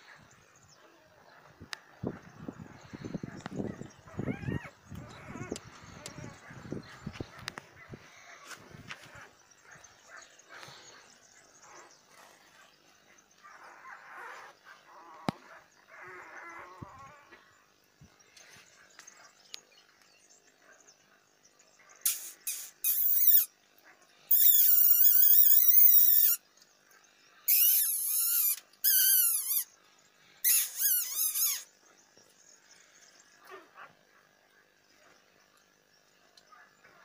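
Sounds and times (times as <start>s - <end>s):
puppy whining: 4.1s - 6.6s, 22.9s - 23.5s, 24.3s - 26.4s
faint high squeaks: 22.1s - 23.5s, 24.3s - 26.4s, 27.5s - 29.7s, 30.4s - 31.7s.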